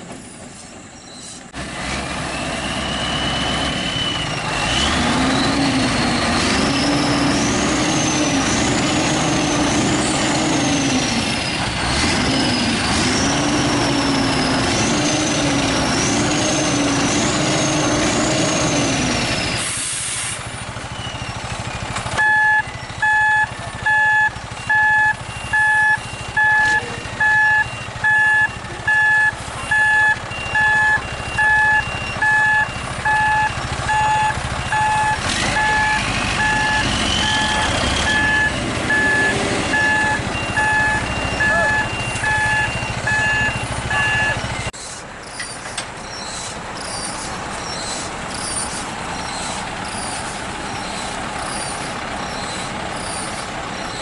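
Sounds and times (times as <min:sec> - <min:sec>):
diesel truck engine revving: 0:01.5 - 0:54.0
air hiss: 0:19.6 - 0:20.5
reversing alarm beeping: 0:22.2 - 0:44.8.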